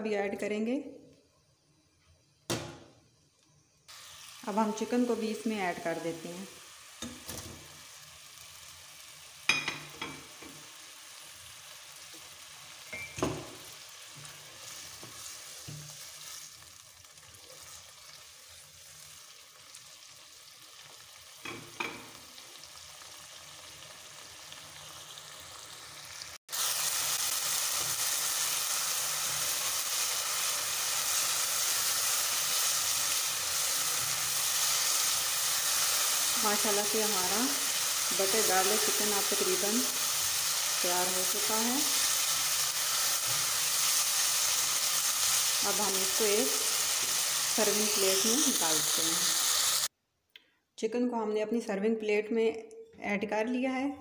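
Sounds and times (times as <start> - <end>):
loud steady sizzle: 1.1 - 49.9.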